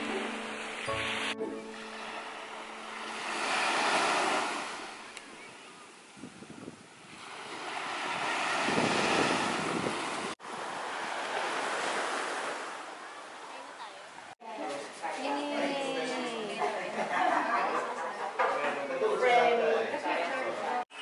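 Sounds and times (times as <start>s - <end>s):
small waves breaking on beach: 0.0s - 14.4s
wind on microphone: 6.1s - 10.4s.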